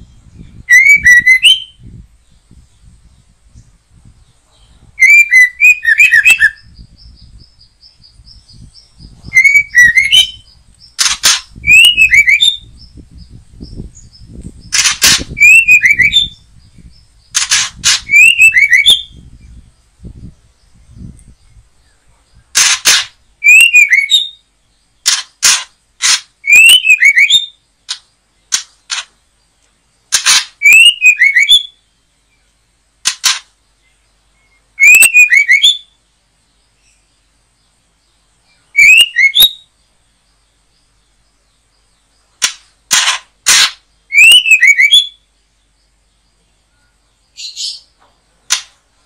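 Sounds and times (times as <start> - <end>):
bird whistled call: 0.6 - 1.9, 5.0 - 7.3, 9.2 - 10.6, 11.6 - 12.8, 15.2 - 16.4, 18.0 - 19.2, 23.4 - 24.4, 26.4 - 27.6, 30.6 - 31.8, 34.8 - 35.9, 38.7 - 39.6, 44.1 - 45.2
sharp cracks: 10.9 - 11.6, 14.7 - 15.8, 17.3 - 18.4, 22.5 - 23.2, 25.0 - 26.4, 27.8 - 30.6, 33.0 - 33.6, 42.4 - 43.9, 48.5 - 48.8.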